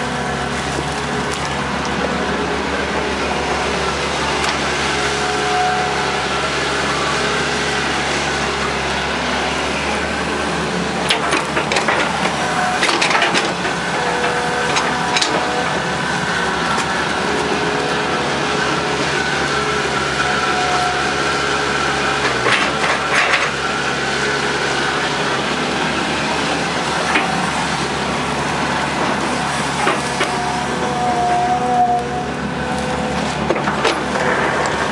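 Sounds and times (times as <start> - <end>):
diesel engine running: 0.0 - 34.9
hydraulic whine: 0.0 - 34.9
metal clanks and knocks: 11.0 - 15.8.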